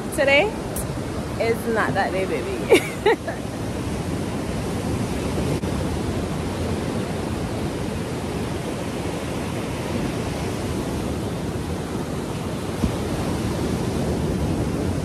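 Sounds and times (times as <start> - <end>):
sea surf breaking: 0.0 - 15.0.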